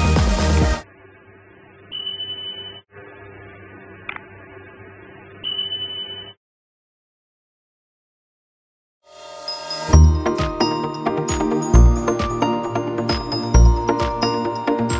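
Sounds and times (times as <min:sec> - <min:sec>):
music: 0:00.0 - 0:00.8, 0:09.0 - 0:14.9
high beeps: 0:01.9 - 0:02.9, 0:05.4 - 0:06.4.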